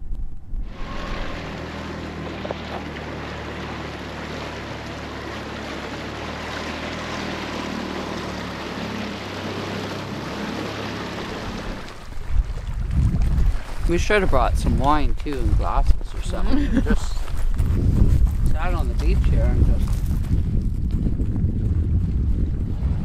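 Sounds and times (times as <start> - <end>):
wind buffeting microphone: 0.0 - 3.0, 11.1 - 23.0
water rushing past hull: 0.0 - 17.2
outboard motor running: 0.6 - 23.0.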